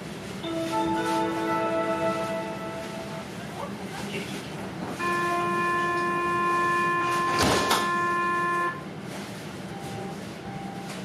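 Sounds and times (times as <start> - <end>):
tram warning horn: 0.4 - 3.4, 5.0 - 9.0.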